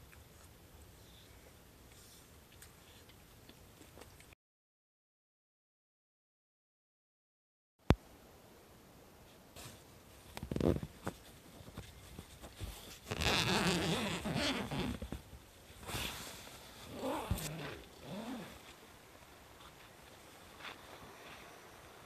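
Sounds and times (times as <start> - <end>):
tent zipper pulled open: 10.4 - 10.9, 13.1 - 15.0, 15.9 - 18.6.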